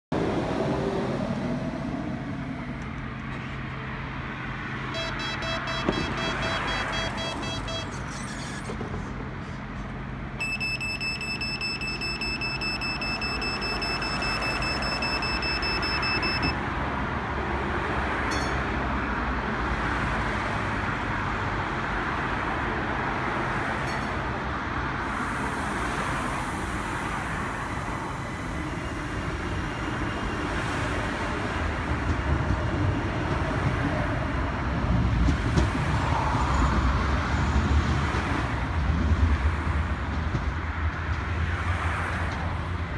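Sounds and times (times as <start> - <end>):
tram rumble: 0.1 - 5.0, 5.8 - 10.4, 13.2 - 42.9
road traffic: 0.1 - 42.9
high electronic tone: 4.9 - 8.7, 10.4 - 16.6.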